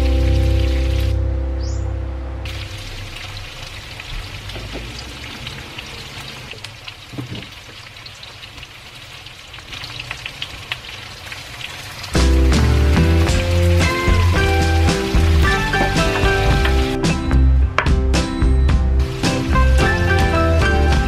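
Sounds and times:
loud music: 0:00.0 - 0:02.6, 0:12.2 - 0:21.0
meat sizzling in hot oil: 0:02.5 - 0:17.0, 0:19.0 - 0:20.4.

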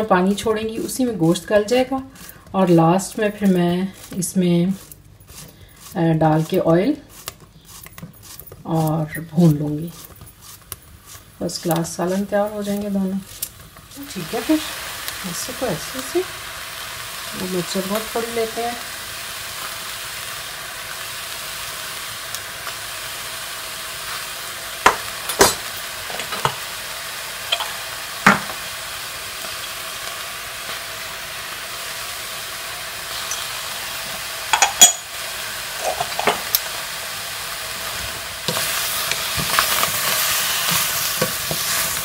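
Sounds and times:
wooden spoon stirring vegetables: 0:00.0 - 0:16.2, 0:37.8 - 0:42.0
spoon tapping steel pot: 0:27.5 - 0:28.5, 0:34.6 - 0:35.1.

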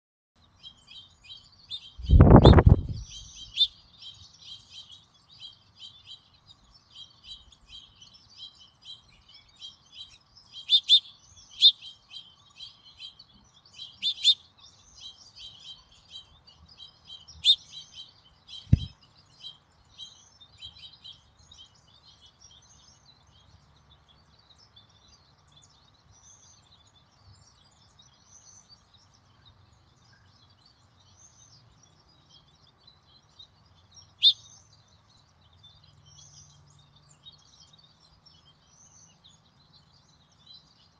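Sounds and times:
small songbirds chirping: 0:00.4 - 0:40.9
low thump: 0:02.0 - 0:03.1, 0:18.7 - 0:18.9.

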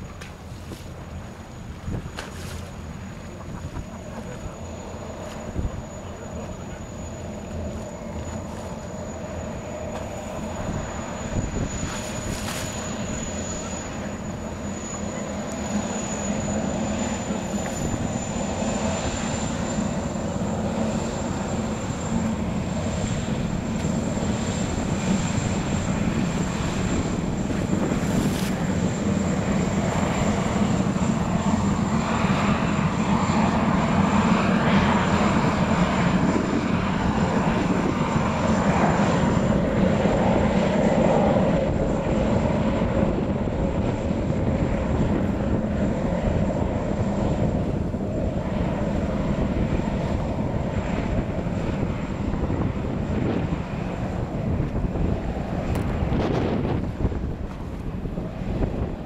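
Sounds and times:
waterjet spray rushing: 0:00.0 - 0:40.9
gas turbine whine: 0:00.0 - 0:59.0.

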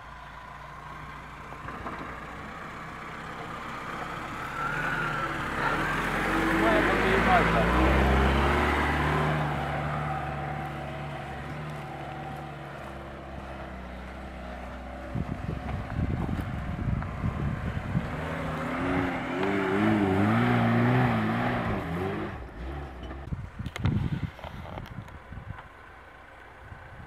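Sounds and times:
car engine revving: 0:00.0 - 0:23.3
car engine running: 0:00.0 - 0:27.0
wind buffeting microphone: 0:14.9 - 0:19.1, 0:23.2 - 0:25.7.

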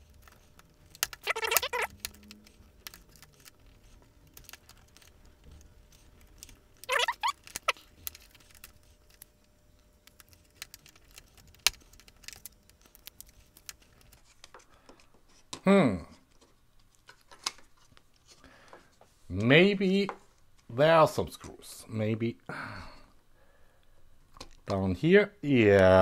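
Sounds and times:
short plastic squeaks: 0:00.4 - 0:02.6, 0:06.4 - 0:09.0.

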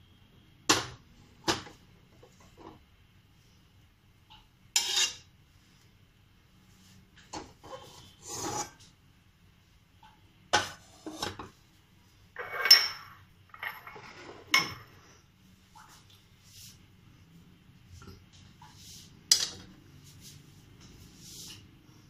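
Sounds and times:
dishes scraping: 0:04.8 - 0:05.3, 0:12.4 - 0:15.0.

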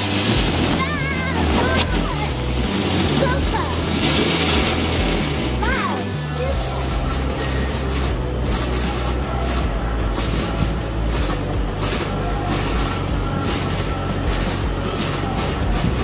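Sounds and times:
background music with bass: 0:00.0 - 0:16.0
firework hissing in spurts: 0:06.0 - 0:16.0.

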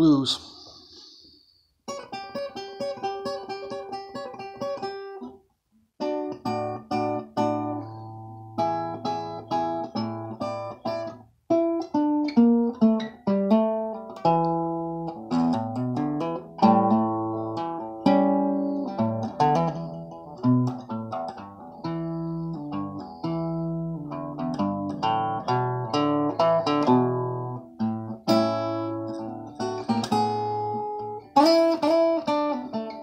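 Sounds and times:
fingerpicked blues guitar: 0:00.6 - 0:33.0.

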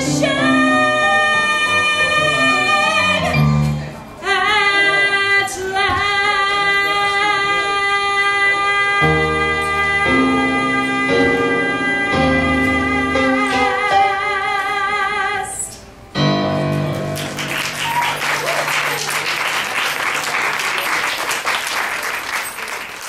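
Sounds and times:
woman singing with vibrato: 0:00.0 - 0:03.6, 0:04.2 - 0:15.9
piano accompaniment: 0:00.0 - 0:04.3, 0:09.0 - 0:22.6
low piano chord: 0:16.1 - 0:17.5
audience applauding: 0:17.0 - 0:23.0.

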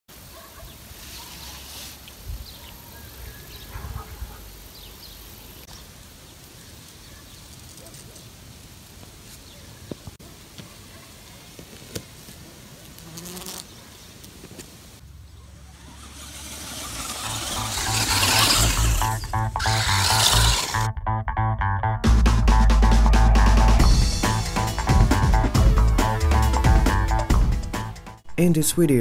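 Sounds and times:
distant electric motors buzzing: 0:15.2 - 0:20.9.

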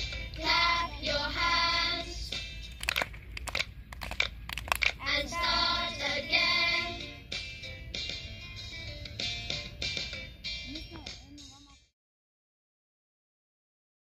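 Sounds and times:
children singing: 0:00.4 - 0:02.3, 0:05.0 - 0:07.1.

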